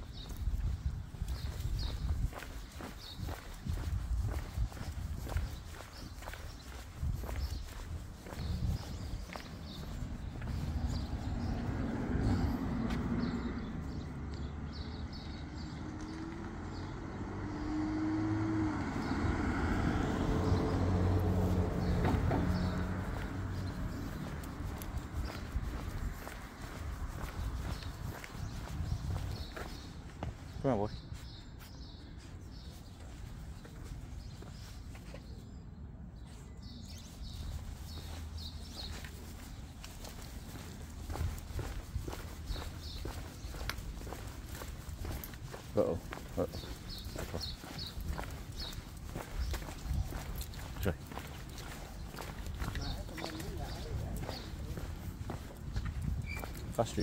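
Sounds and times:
light footsteps: 0:00.0 - 0:14.5, 0:20.3 - 0:30.5, 0:36.9 - 0:57.0
vehicle engine humming: 0:09.2 - 0:28.2.

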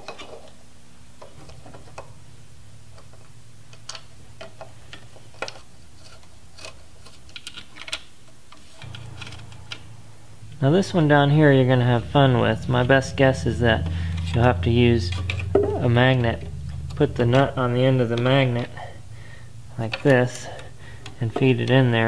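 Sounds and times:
steady low hum: 0:00.0 - 0:07.1, 0:08.4 - 0:22.0.

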